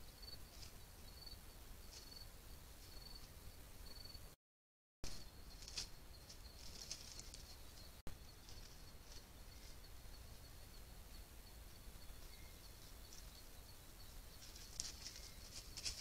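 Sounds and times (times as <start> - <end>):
soft rustling scratches: 6.6 - 7.5, 14.4 - 16.0.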